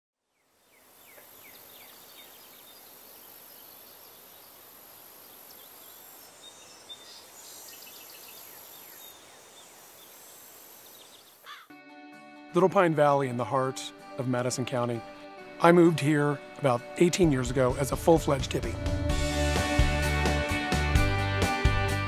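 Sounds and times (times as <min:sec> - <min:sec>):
birds chirping: 0:00.4 - 0:11.7
high insect buzz: 0:00.6 - 0:11.7.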